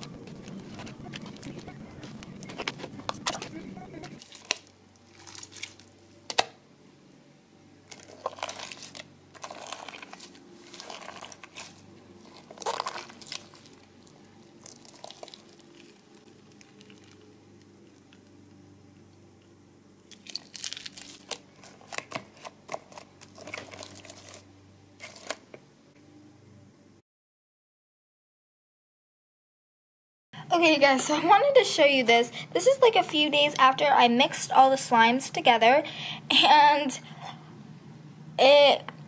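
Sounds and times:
sticky slime squelching: 0.0s - 6.5s, 7.8s - 18.4s, 20.0s - 25.5s.

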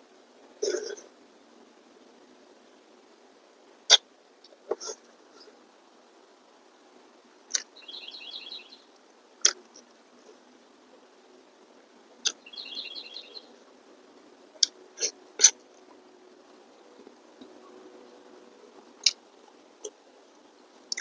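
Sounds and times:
lip smacks and mouth clicks: 7.5s - 7.7s
songbird trilling: 7.5s - 8.9s, 12.2s - 13.5s.

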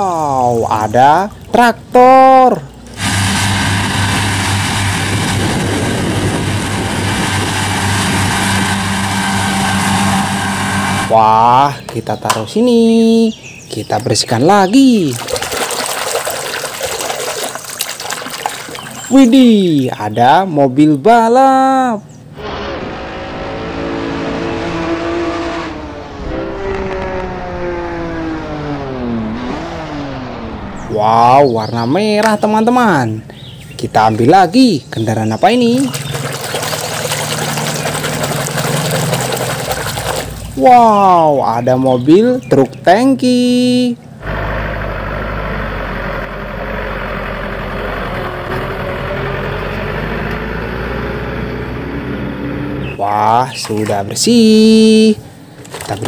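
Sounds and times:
tractor engine running: 2.7s - 11.4s, 35.6s - 40.6s
mower mechanical whirr: 2.8s - 11.2s, 24.6s - 30.8s
sports car engine running: 2.8s - 11.2s, 24.4s - 30.9s.

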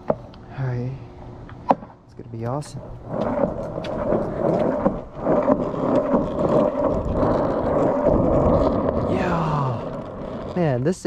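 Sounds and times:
skateboard wheels rolling: 2.5s - 11.0s.

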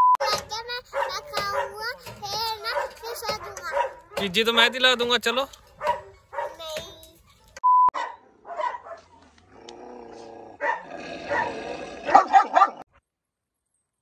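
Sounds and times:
short beep: 0.0s - 0.2s
dog growling and barking: 8.3s - 12.9s.

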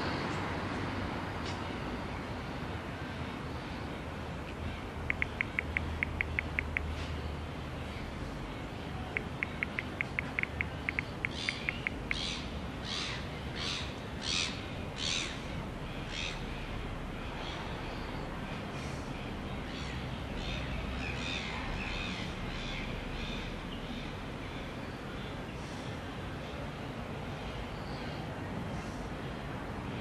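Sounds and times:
steady background noise: 0.0s - 30.0s
birds calling: 4.5s - 29.1s.

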